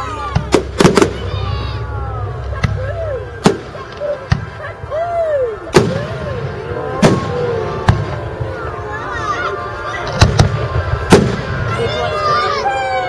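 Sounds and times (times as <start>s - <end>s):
fireworks bursting: 0.2s - 1.8s, 2.4s - 4.6s, 5.7s - 8.4s, 10.0s - 12.2s.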